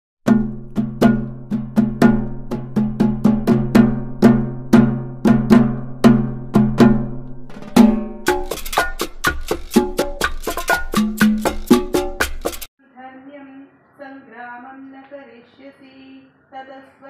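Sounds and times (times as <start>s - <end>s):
pitched drum music: 0.2s - 12.7s.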